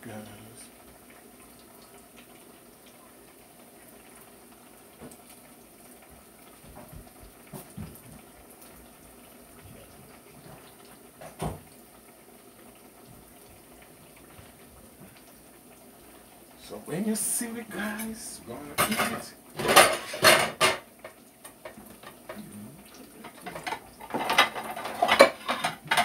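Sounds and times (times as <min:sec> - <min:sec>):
steady low hiss: 0:13.2 - 0:21.5
pans knocking and clinking: 0:18.7 - 0:22.4, 0:23.2 - 0:26.0.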